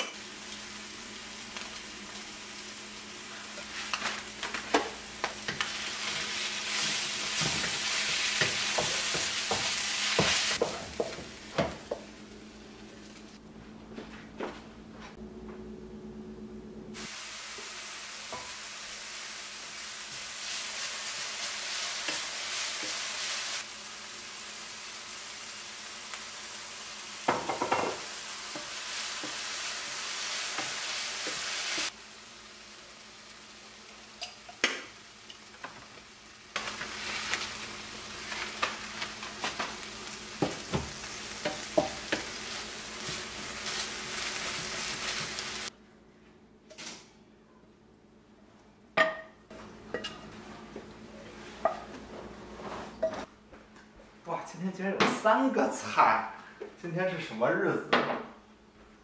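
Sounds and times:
vegetables sizzling in a pan: 0.0s - 13.4s, 17.0s - 45.7s
spatula knocking and scraping pan: 3.9s - 12.2s, 40.4s - 42.4s.

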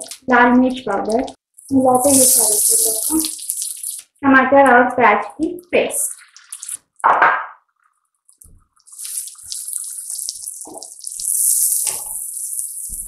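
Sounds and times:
spatula stirring: 1.0s - 4.2s, 6.1s - 7.0s, 8.3s - 13.0s
paste sizzling in hot oil: 1.6s - 4.2s, 8.8s - 13.0s.

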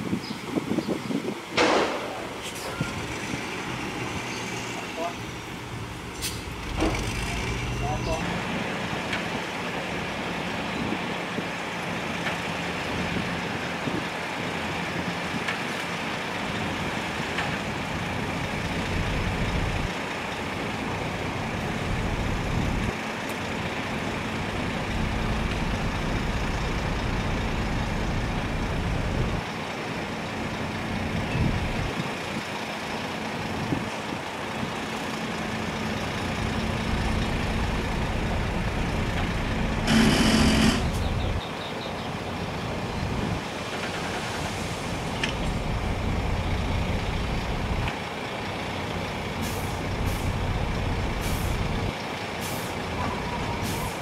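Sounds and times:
diesel truck engine rumbling: 0.0s - 54.0s
steady hum: 39.9s - 41.3s.

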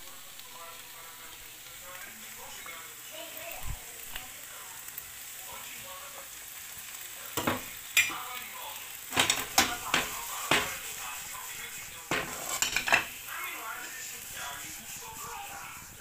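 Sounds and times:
food sizzling in a frying pan: 0.0s - 16.0s
knocks and scrapes against pan: 7.4s - 8.1s, 9.1s - 13.2s.

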